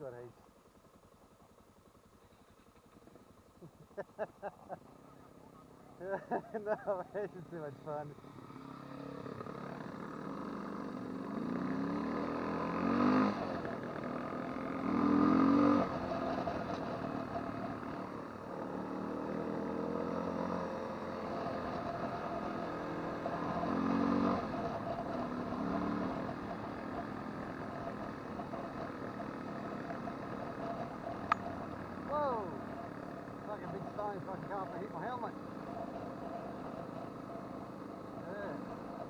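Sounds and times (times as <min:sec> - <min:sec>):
motorcycle engine revving: 0:07.8 - 0:39.0.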